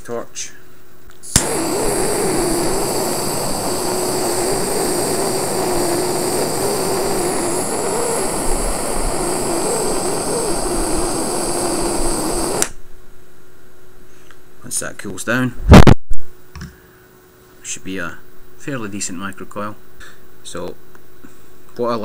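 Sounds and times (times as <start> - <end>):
jet torch hissing: 1.3 - 12.8.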